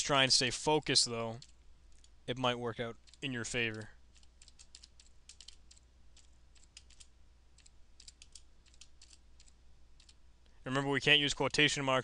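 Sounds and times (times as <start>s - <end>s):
keyboard typing clicks: 3.0s - 10.2s.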